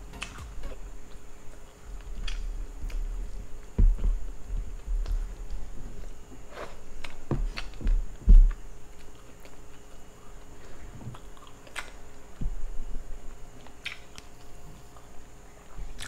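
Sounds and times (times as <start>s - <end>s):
low thump: 3.8s - 4.2s
chewing and wet mouth sounds: 8.9s - 12.4s, 13.6s - 15.2s.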